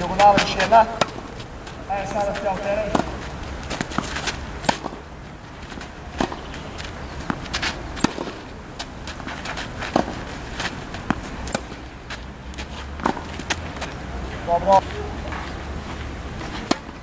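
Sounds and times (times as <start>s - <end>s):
tennis balls bouncing on court: 0.0s - 17.0s
tennis balls struck by rackets: 0.0s - 17.0s.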